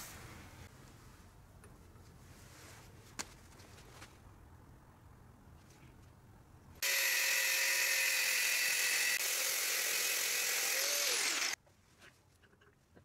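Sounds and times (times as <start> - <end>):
power tool whining on metal: 6.8 - 11.6.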